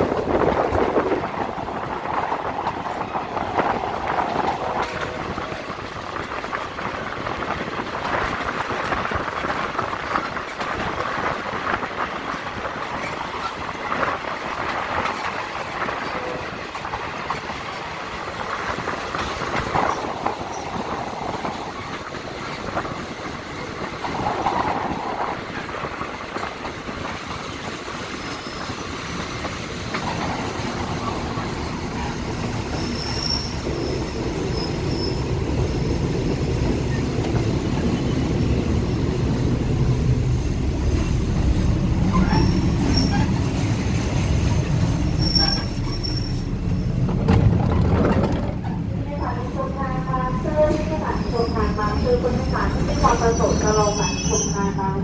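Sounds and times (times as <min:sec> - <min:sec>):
train rumble: 0:00.0 - 0:55.0
wheel squeals: 0:32.6 - 0:35.2, 0:42.0 - 0:43.4, 0:45.2 - 0:46.9
train wheels clicking over rail joints: 0:40.9 - 0:48.9.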